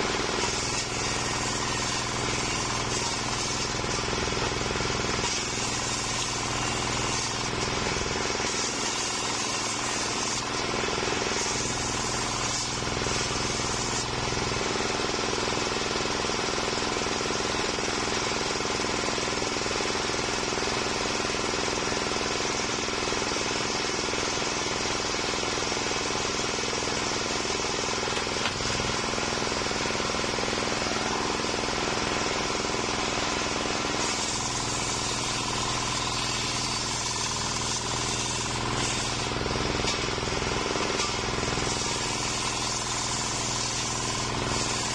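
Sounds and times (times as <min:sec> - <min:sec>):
saw blade spinning freely: 0:00.0 - 0:15.0, 0:26.4 - 0:44.9
circular saw ripping wood: 0:00.0 - 0:15.6, 0:26.0 - 0:44.9
stationary engine running: 0:00.0 - 0:44.9.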